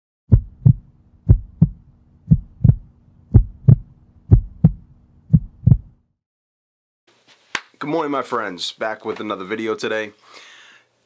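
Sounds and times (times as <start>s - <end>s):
heartbeat thumps: 0.3s - 6.0s.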